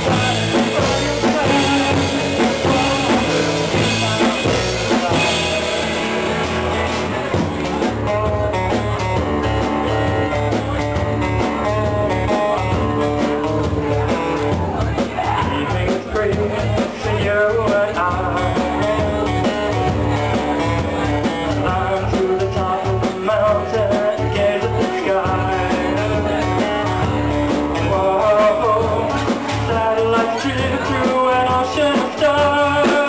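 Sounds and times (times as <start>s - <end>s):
drum kit beat: 0.0s - 33.0s
electric guitar: 0.0s - 33.0s
man singing: 0.0s - 33.0s
strummed acoustic guitar: 0.0s - 33.0s.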